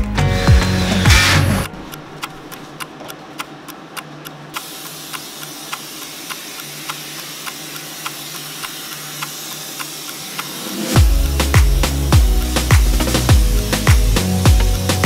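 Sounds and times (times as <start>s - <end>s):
steady ticking: 0.0s - 15.0s
spray foam hissing: 4.6s - 15.0s.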